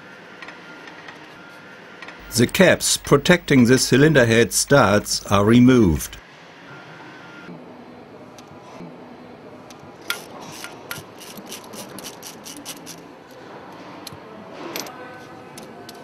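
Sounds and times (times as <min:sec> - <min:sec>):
ratchet wrench clicking: 0:10.1 - 0:13.0.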